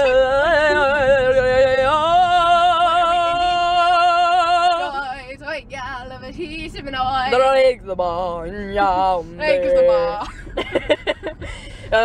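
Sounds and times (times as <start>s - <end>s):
person singing unaccompanied: 0.0s - 5.3s.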